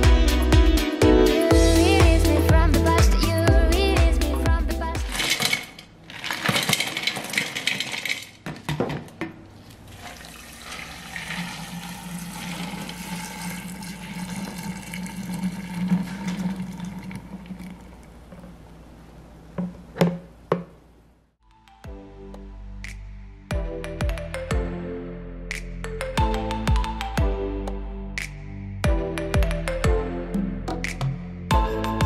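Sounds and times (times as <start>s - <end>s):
liquid pouring into glass jar: 9.7s - 18.5s.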